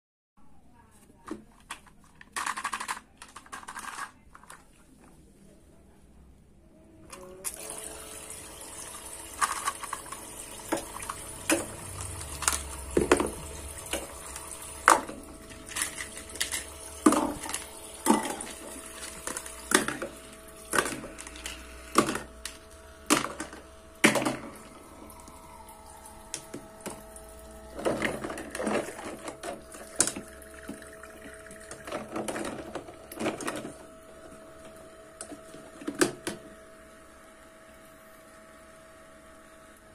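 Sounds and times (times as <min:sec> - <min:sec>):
plastic dishes clacking: 0:01.2 - 0:04.8, 0:09.4 - 0:14.1, 0:14.8 - 0:24.5, 0:31.7 - 0:33.8
toy water pump humming: 0:07.1 - 0:39.9.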